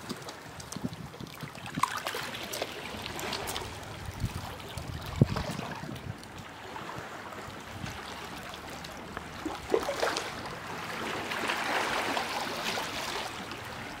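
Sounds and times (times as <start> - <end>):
small waves washing over rocks: 0.0 - 14.0.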